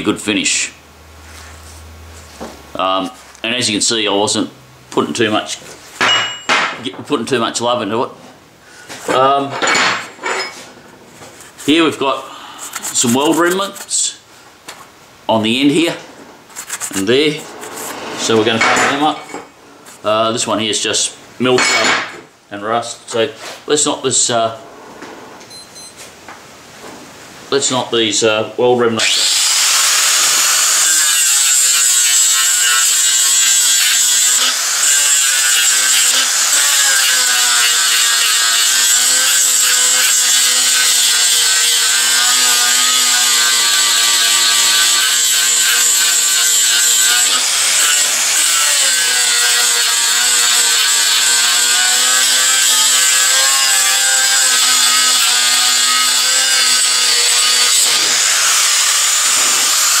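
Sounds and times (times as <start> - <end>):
angle grinder grinding steel: 11.4 - 14.2, 15.6 - 20.1, 29.0 - 60.0.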